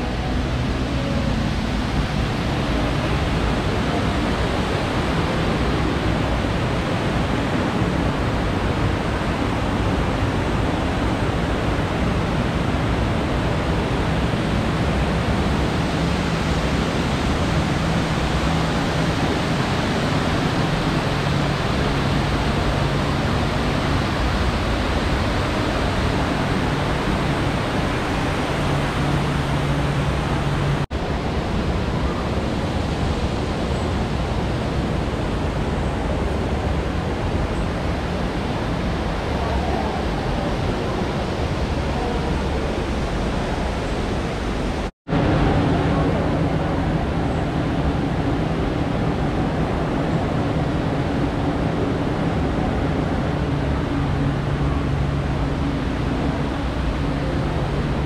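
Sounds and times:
faint wavering low hum: 0.0 - 41.0
loud rushing noise: 0.0 - 58.0.

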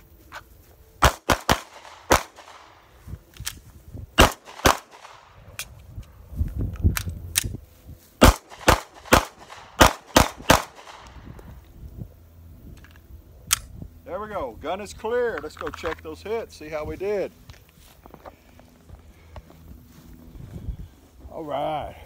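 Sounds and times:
handgun shots: 1.0 - 2.7, 4.2 - 5.6, 8.2 - 11.2.

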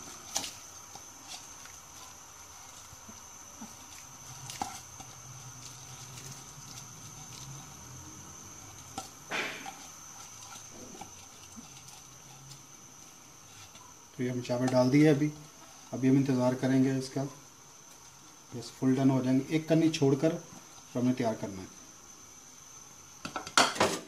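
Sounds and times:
rice pattering and splashing: 0.0 - 17.1
low steady hum: 0.0 - 23.2.

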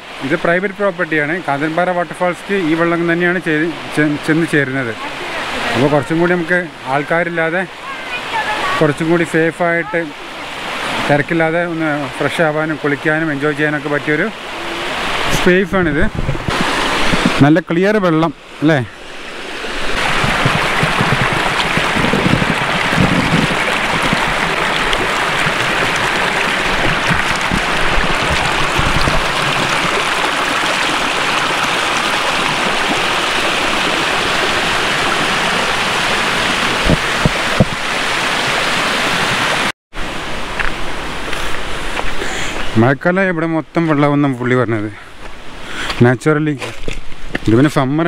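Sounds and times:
stream running over rocks: 0.0 - 48.0.

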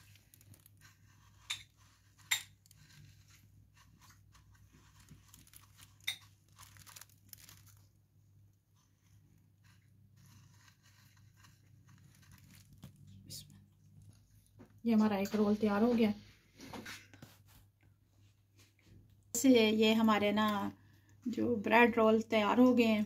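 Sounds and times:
coconut flakes rustling and crackling: 0.0 - 15.9.

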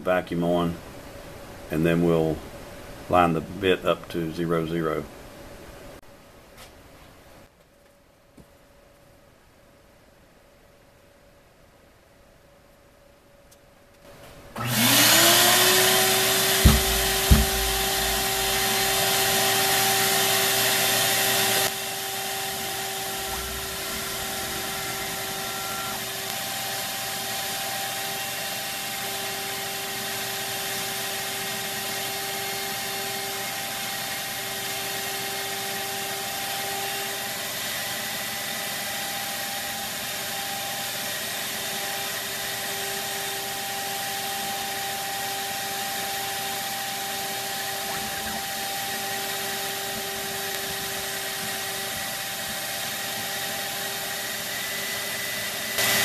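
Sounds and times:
vacuum motor whining and rushing: 14.6 - 56.0
sharp knocks: 16.4 - 18.8.

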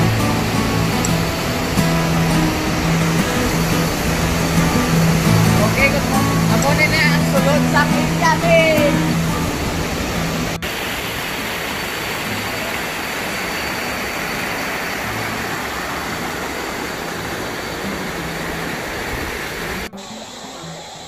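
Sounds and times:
waterfall rushing: 0.0 - 21.0.

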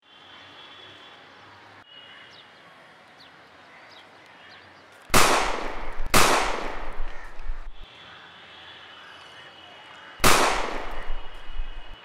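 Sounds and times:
gunshots echoing: 5.1 - 7.8, 10.2 - 12.0.

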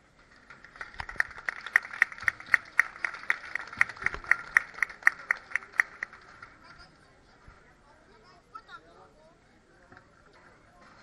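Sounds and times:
audience applauding: 0.3 - 6.8
person clapping evenly: 0.6 - 6.5.

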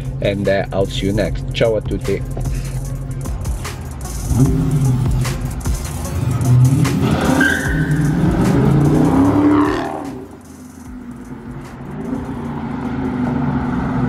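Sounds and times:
car engine revving hard: 4.3 - 5.3, 6.2 - 10.4.

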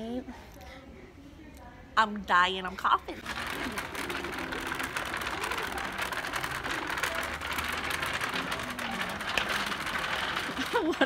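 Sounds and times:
faint voices of shoppers: 0.0 - 11.0
basket wheels rattling on floor: 3.2 - 11.0.

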